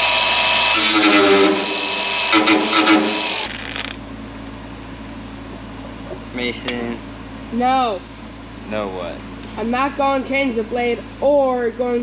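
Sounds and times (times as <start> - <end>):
angle grinder cutting steel: 0.0 - 3.9.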